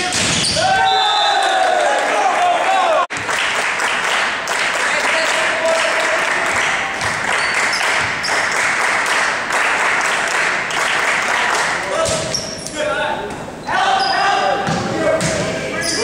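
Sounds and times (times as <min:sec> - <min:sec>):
scattered clapping: 0:03.1 - 0:12.0.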